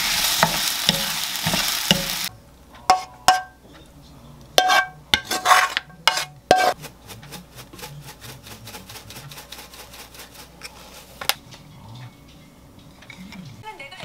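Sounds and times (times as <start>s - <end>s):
frying pan clinking on ceramic dish: 2.9s - 3.6s.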